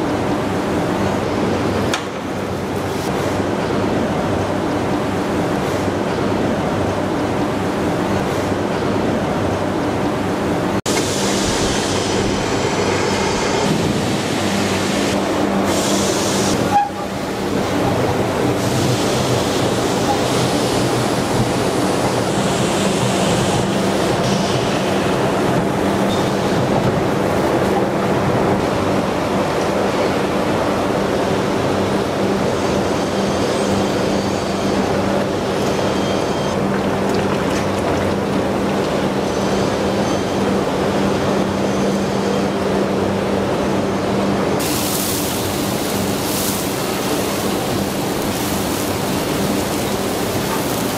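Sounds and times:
factory machinery din: 10.8 - 28.6.

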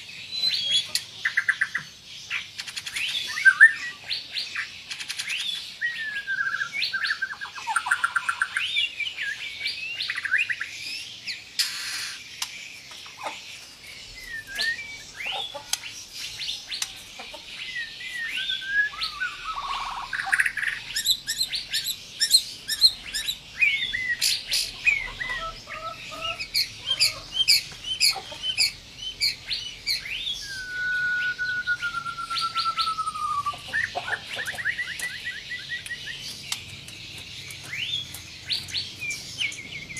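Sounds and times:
songbird whistling and trilling: 0.3 - 12.2, 14.0 - 36.6, 37.4 - 39.9
long descending bird whistle: 5.8 - 10.5, 14.2 - 15.4, 17.6 - 21.4, 28.6 - 33.7.

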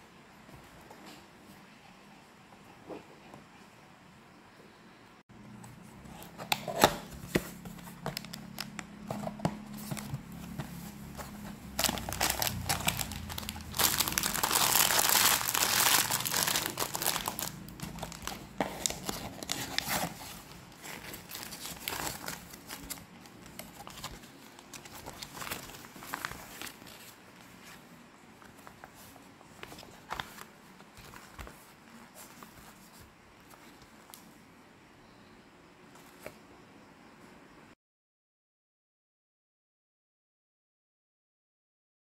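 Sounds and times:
cardboard box clicks and rustles: 6.3 - 27.1
paper sheet rustling: 6.7 - 34.1
plastic bag crinkling: 7.8 - 27.2.

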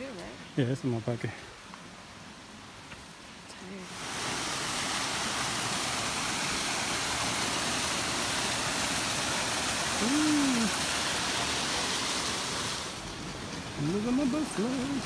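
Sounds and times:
creek water rushing over rocks: 0.0 - 15.0
person humming: 10.0 - 10.8.

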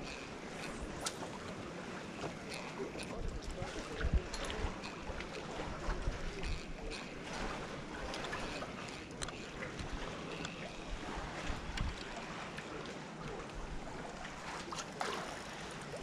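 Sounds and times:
wind rumbling on microphone: 3.0 - 12.5
faint clicks: 8.1 - 10.8.

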